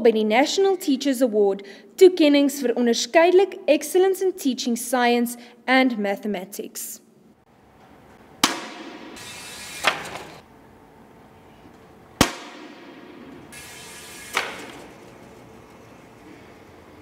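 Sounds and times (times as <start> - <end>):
air rifle shots: 8.4 - 10.3, 12.2 - 14.8.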